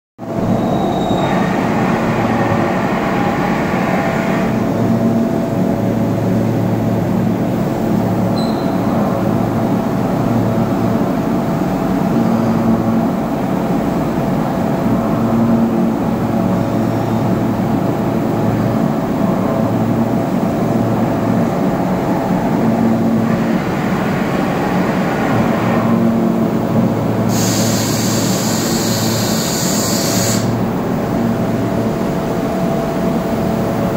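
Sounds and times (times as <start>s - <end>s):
hiss: 27.3s - 30.6s.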